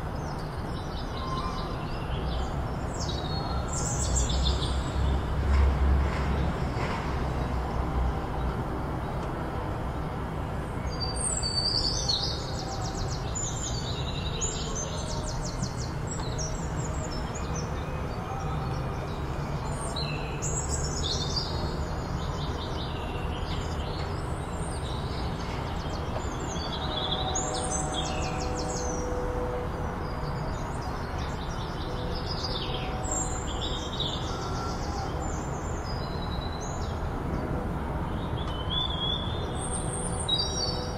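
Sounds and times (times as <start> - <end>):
small birds chirping and trilling: 10.8 - 29.4.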